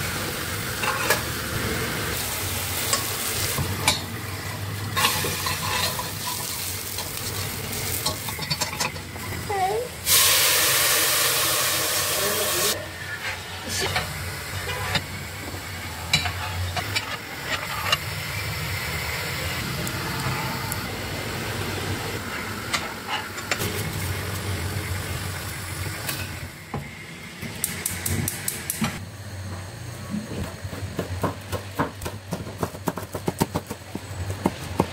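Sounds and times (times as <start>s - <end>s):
food sizzling in hot oil: 0.0s - 26.7s
kitchen work clicks and knocks: 8.0s - 9.2s, 16.1s - 18.0s.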